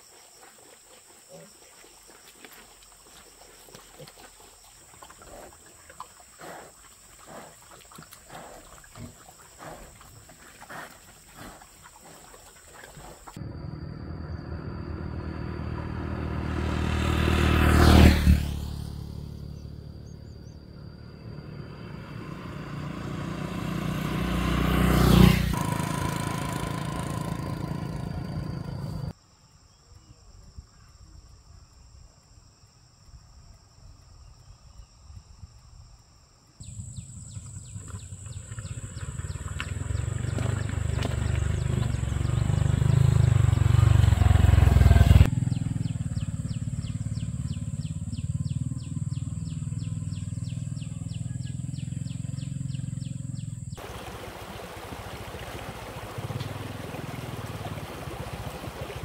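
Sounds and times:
high insect chirr: 0:00.0 - 0:58.4
motorbikes passing by: 0:13.4 - 0:29.1, 0:36.7 - 0:59.0.

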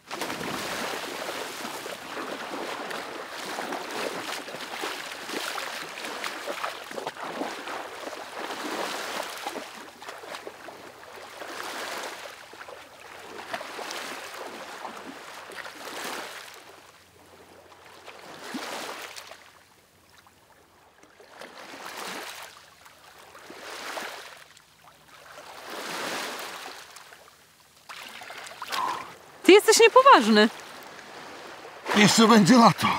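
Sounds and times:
waves washing onto sand: 0:00.0 - 0:16.7.

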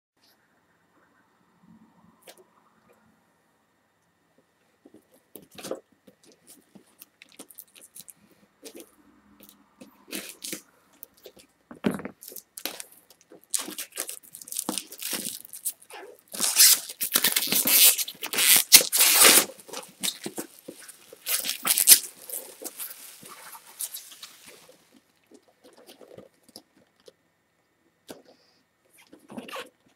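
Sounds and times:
crinkling and tearing of wrapping: 0:05.4 - 0:25.0.

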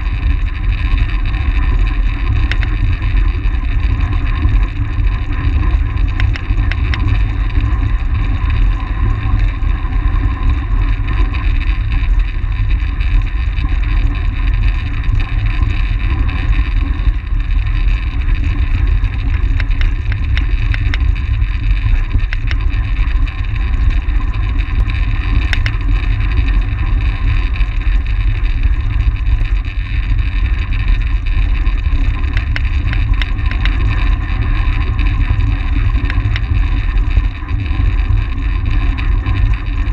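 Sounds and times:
faint ticks: 0:00.1 - 0:04.8, 0:05.4 - 0:09.6, 0:11.2 - 0:39.9.

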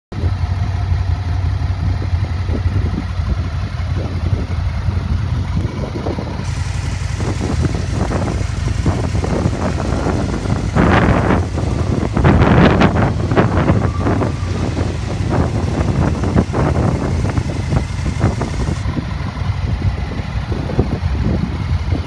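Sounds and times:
motorcycle engine idling: 0:00.1 - 0:22.0.

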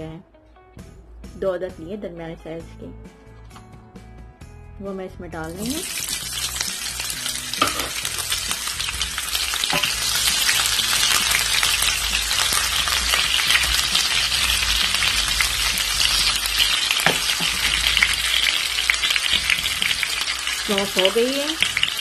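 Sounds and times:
food sizzling in hot oil: 0:05.4 - 0:22.0.

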